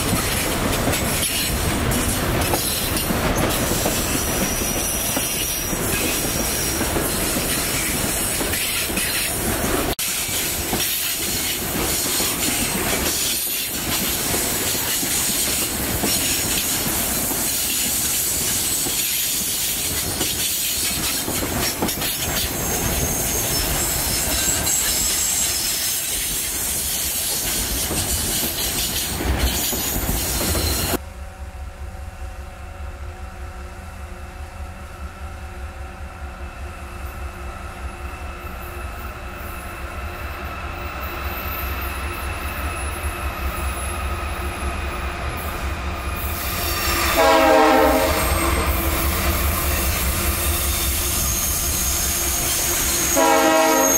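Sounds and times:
diesel locomotive engine droning: 0.0s - 53.9s
freight train wheel and rail noise: 0.0s - 53.9s
high wheel squeal: 17.4s - 31.0s, 47.9s - 53.9s
train horn blast: 46.6s - 49.2s, 52.7s - 53.9s.

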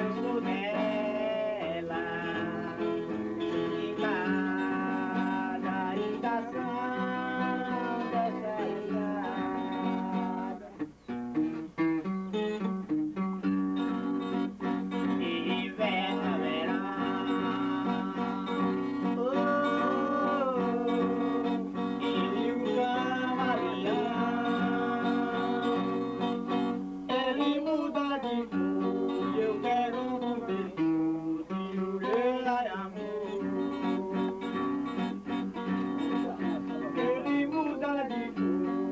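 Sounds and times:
man singing: 0.0s - 10.9s, 14.9s - 38.9s
acoustic guitar strumming: 0.0s - 38.9s.

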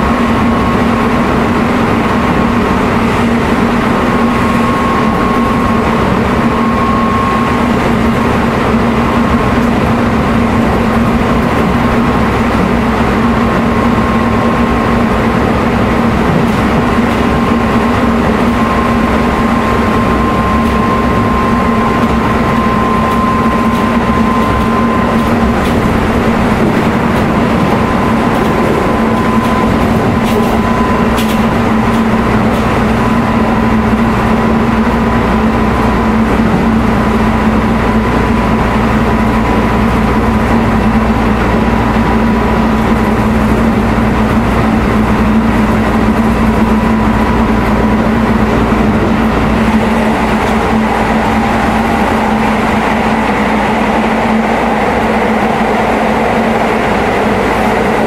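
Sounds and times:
traction drive whine: 0.0s - 58.0s
train wheels rumbling on rails: 0.0s - 58.0s.

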